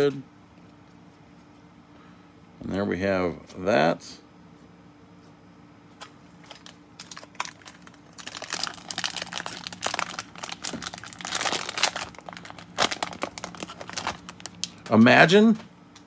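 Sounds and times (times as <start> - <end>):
wrapper crinkling: 6.3 - 15.0.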